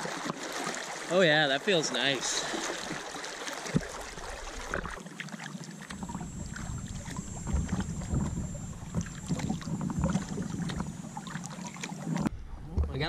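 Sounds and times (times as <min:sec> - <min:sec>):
rushing river water: 0:00.0 - 0:12.3
paddle splashing: 0:00.0 - 0:12.4
wind rumble on microphone: 0:05.9 - 0:11.3
water dripping: 0:05.9 - 0:12.3.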